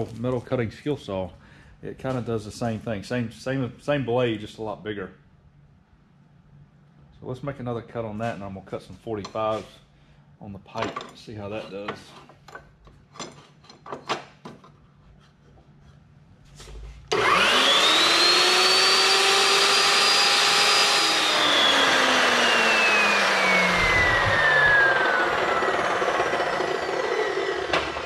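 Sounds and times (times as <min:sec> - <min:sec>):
chop saw whine cutting steel: 0:17.1 - 0:28.0.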